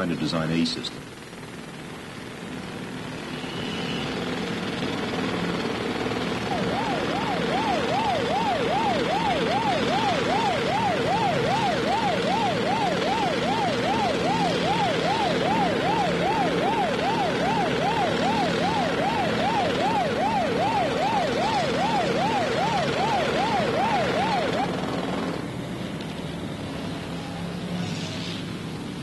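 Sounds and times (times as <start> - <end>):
siren-like warbling tone: 6.4 - 24.8.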